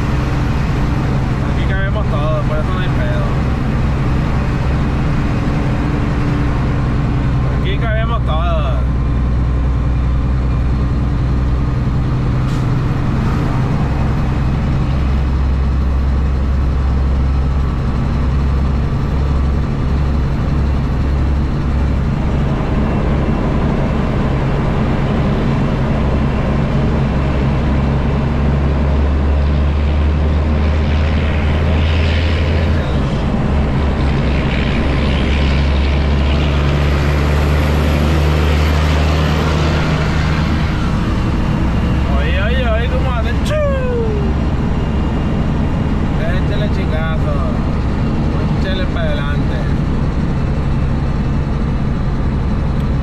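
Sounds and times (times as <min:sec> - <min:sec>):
diesel truck engine droning: 0:00.0 - 0:53.0
road noise: 0:00.0 - 0:53.0.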